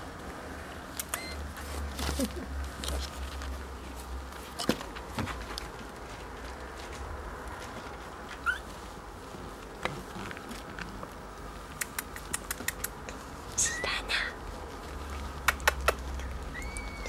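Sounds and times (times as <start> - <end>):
sharp little clicks: 0.9 - 1.4, 11.7 - 13.2, 15.4 - 17.0
kittens scratching and pattering: 0.9 - 13.6, 14.3 - 17.0
high rising squeak: 16.4 - 17.0.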